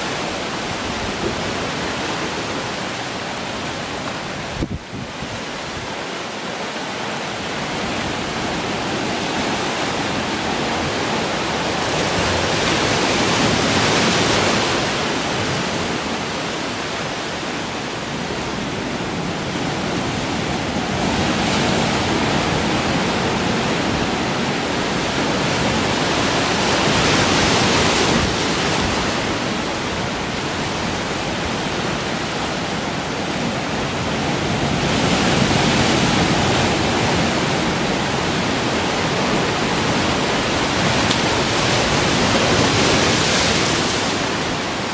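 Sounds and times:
waves breaking over rocks: 0:18.1 - 0:44.9.

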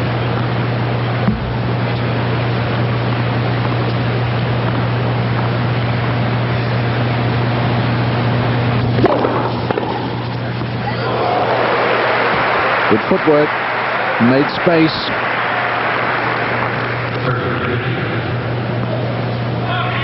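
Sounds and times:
low electrical hum and hiss: 0:00.0 - 0:20.0.

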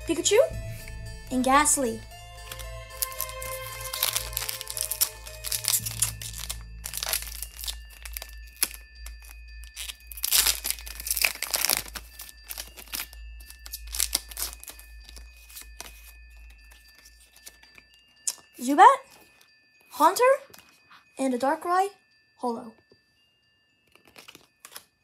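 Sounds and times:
wrapper crinkling and tearing: 0:02.4 - 0:17.6, 0:23.9 - 0:24.9.

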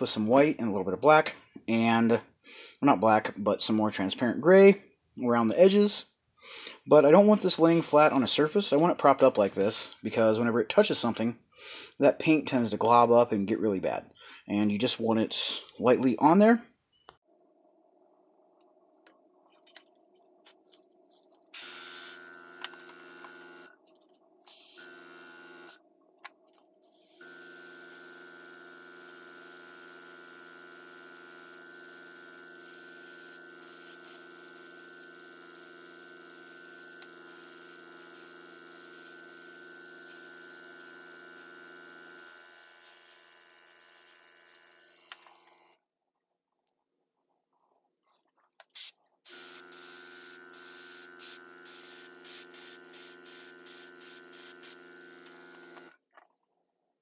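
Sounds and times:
airbrush compressor humming: 0:21.1 - 0:25.8, 0:26.8 - 0:45.8, 0:48.8 - 0:56.0
airbrush spraying hiss: 0:24.4 - 0:24.9, 0:31.8 - 0:39.5, 0:48.7 - 0:55.8.

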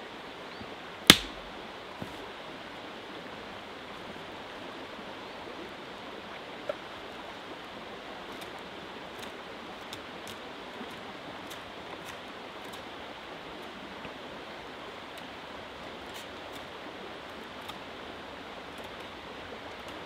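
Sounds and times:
small river flowing: 0:00.0 - 0:20.0
sharp loud crack: 0:01.1 - 0:01.5.

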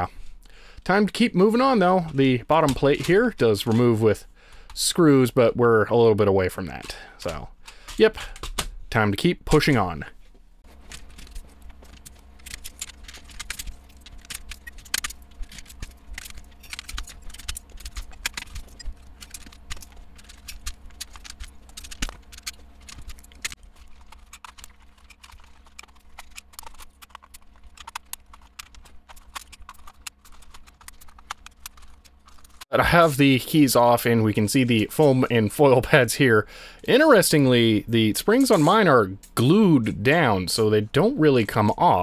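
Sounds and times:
low steady hum: 0:00.0 - 0:42.0
keycaps clicking off a keyboard: 0:10.8 - 0:32.6.

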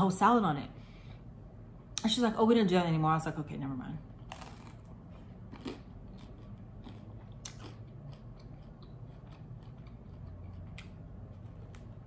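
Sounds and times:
person chewing crunchy food: 0:04.1 - 0:12.0.

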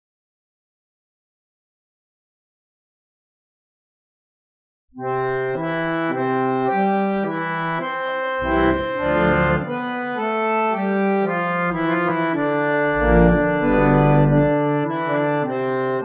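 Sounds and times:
deep organ bass notes: 0:05.0 - 0:16.0
reed organ playing chords: 0:05.0 - 0:16.0.

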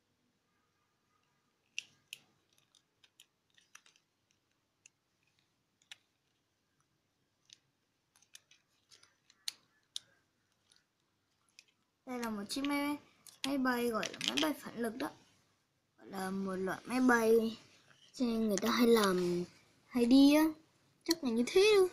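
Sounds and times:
robot toy parts clicking: 0:01.6 - 0:06.4, 0:07.4 - 0:14.6.

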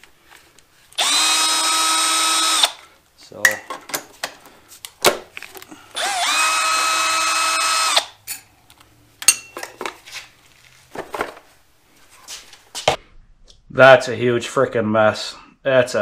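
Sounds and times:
cordless driver whining: 0:01.0 - 0:02.8, 0:05.9 - 0:08.2.

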